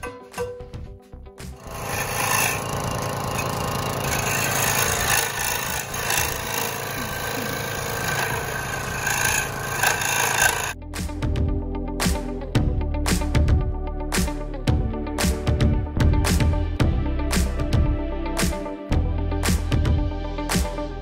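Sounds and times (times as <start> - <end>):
music with a beat: 0.0 - 1.6, 10.8 - 21.0
scroll saw cutting wood: 1.5 - 10.8.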